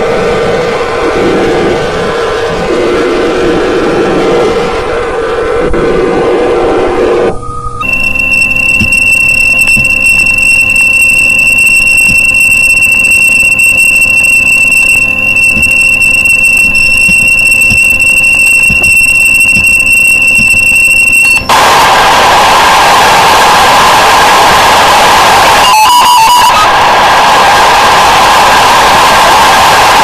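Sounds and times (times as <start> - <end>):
high-pitched electronic tone: 7.4 - 21.5.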